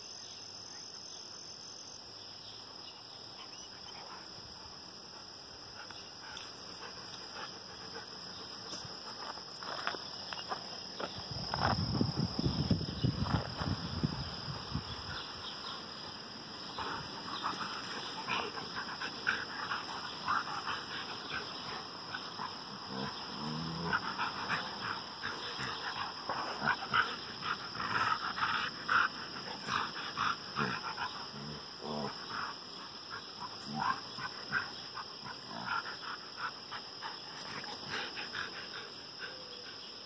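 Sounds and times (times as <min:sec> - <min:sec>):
dog low vocal sounds: 0:16.6 - 0:40.0.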